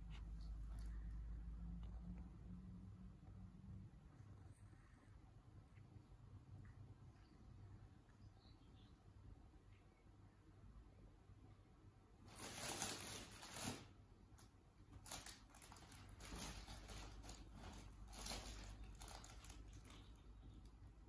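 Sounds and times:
soft patter of paws: 0.0 - 10.2, 14.4 - 21.0
fabric tunnel rustling: 12.2 - 13.9, 15.0 - 20.1.

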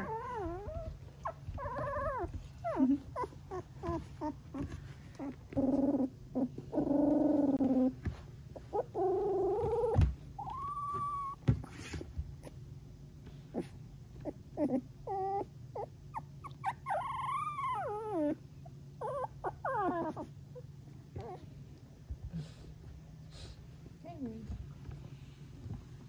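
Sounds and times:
puppy trilling and whining: 0.0 - 12.6, 13.5 - 21.6.

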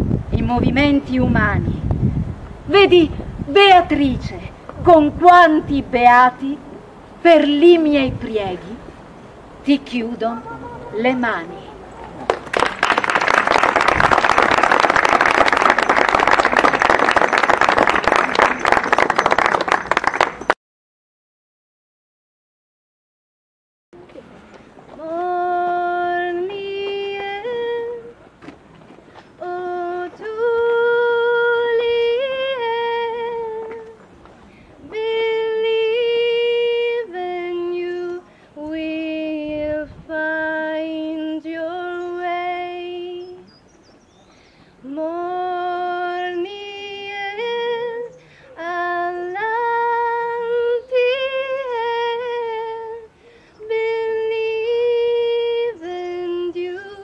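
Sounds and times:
audience applauding: 12.0 - 20.6
person singing unaccompanied: 24.9 - 28.2, 29.4 - 34.0, 34.8 - 43.5, 44.8 - 57.0.

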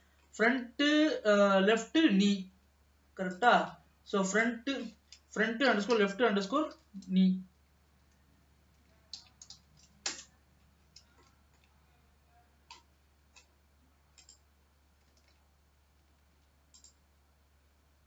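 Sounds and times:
mouse and keyboard clicks: 8.8 - 10.3, 14.2 - 14.4, 16.0 - 17.0.

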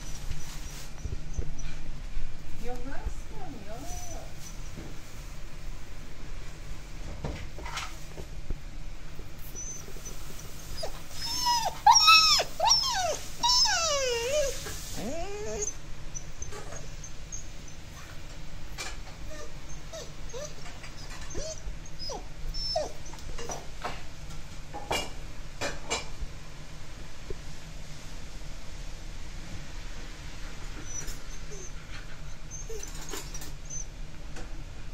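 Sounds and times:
dog moaning: 3.8 - 4.4, 9.5 - 18.2, 19.2 - 23.6, 32.4 - 33.8
dog whining: 3.8 - 4.6, 9.4 - 23.7, 30.6 - 34.0.

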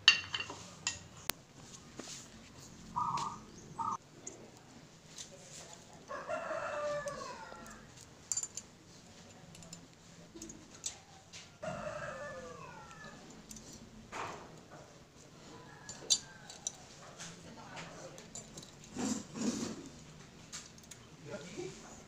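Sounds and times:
rooster crowing: 6.1 - 7.9, 11.1 - 13.3
metal parts clinking: 8.0 - 8.7.

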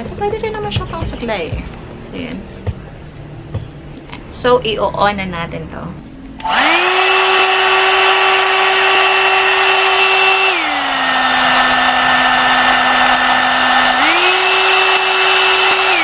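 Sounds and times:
hair dryer motor whine: 6.4 - 16.0.

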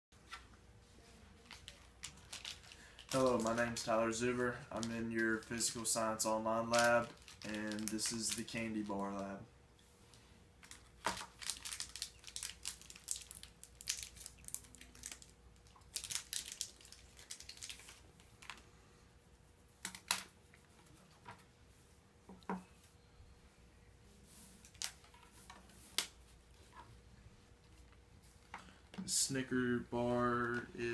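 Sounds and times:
plastic wrapper crinkling: 1.4 - 9.4, 10.6 - 18.6.

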